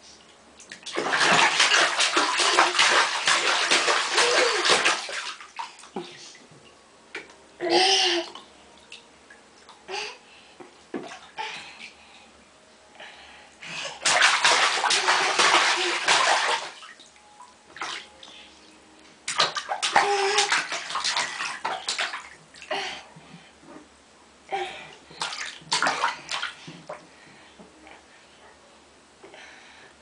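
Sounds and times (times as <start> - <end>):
toddler splashing bathwater: 0.8 - 6.1, 13.8 - 17.0, 19.3 - 22.8, 25.2 - 26.6.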